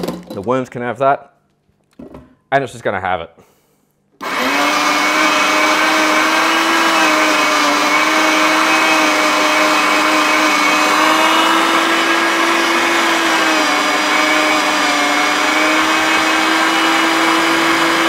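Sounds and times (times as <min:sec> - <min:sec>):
meat mincer motor whining: 0:04.2 - 0:18.0.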